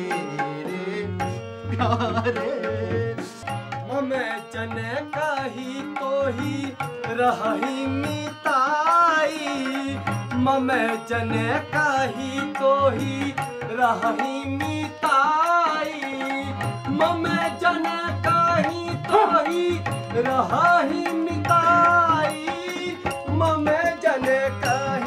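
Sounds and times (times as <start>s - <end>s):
man singing: 0.0s - 25.0s.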